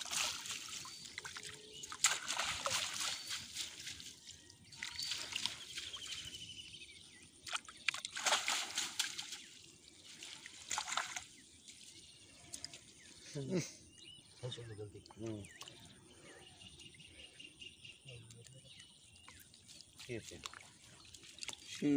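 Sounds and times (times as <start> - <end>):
water dripping: 0.0 - 6.5, 7.4 - 13.0, 14.9 - 16.0, 18.2 - 21.9
water sloshing and splashing: 0.0 - 13.2, 19.0 - 21.9.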